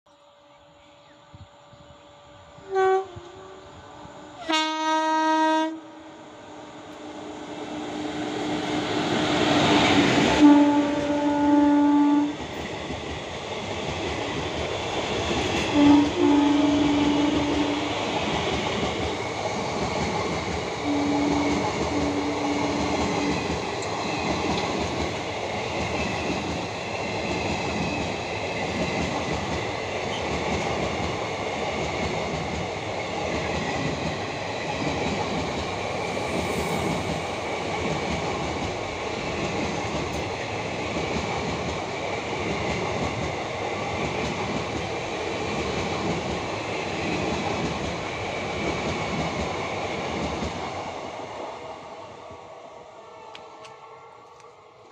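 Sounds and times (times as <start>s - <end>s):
train rolling past: 0.2s - 54.9s
locomotive horn honking: 2.6s - 3.6s, 4.4s - 6.0s, 10.4s - 12.3s, 15.7s - 17.8s, 20.8s - 22.5s.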